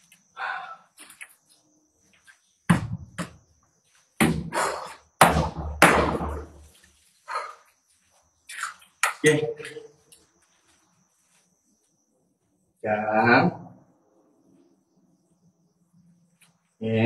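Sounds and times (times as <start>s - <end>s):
loud sudden thuds and knocks: 2.7s - 3.3s, 4.2s - 4.6s, 5.2s - 6.6s.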